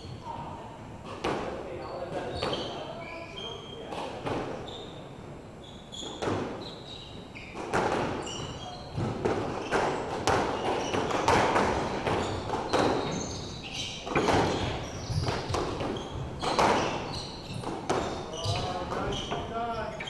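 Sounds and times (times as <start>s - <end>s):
shoes squeaking on floor: 0.0s - 20.0s
squash ball knocking: 7.6s - 13.2s, 14.0s - 19.6s.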